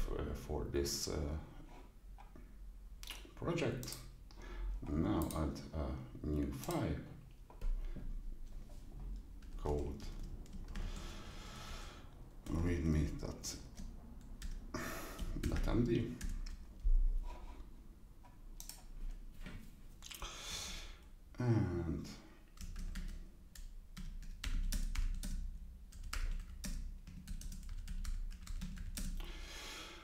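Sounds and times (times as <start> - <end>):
computer keyboard typing: 5.1 - 5.6, 9.2 - 11.0, 13.7 - 14.6, 15.2 - 16.6, 18.6 - 18.9, 22.6 - 29.2.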